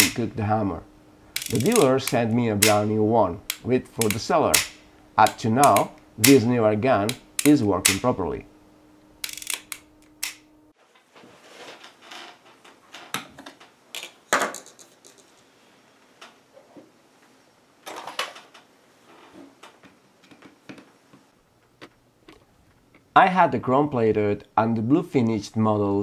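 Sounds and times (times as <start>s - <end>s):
screwdriver working at metal: 1.3s - 2.8s, 3.4s - 6.4s, 7.0s - 8.1s, 9.2s - 10.5s
metal revolver clicks and taps: 3.5s - 6.4s.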